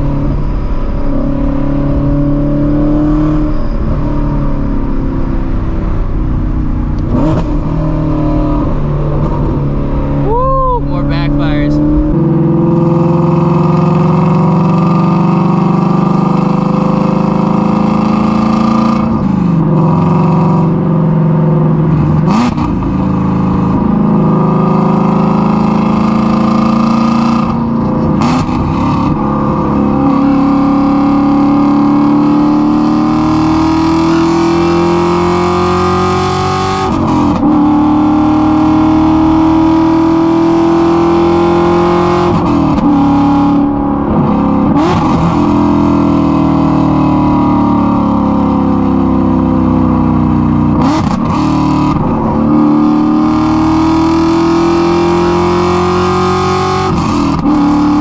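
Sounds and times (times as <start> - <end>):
car exhaust engine note: 0.0 - 58.0.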